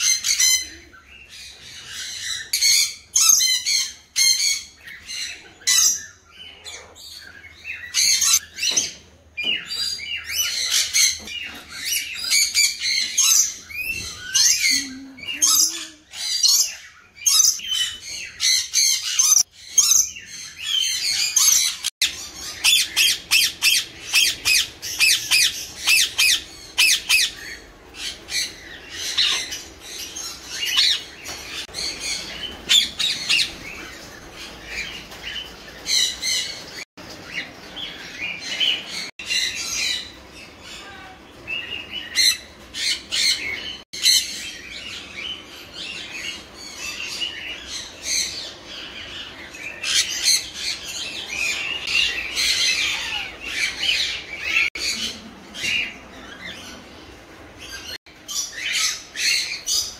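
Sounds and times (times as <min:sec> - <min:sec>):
parrots screeching: 0:10.2 - 0:34.0, 0:45.9 - 0:56.6.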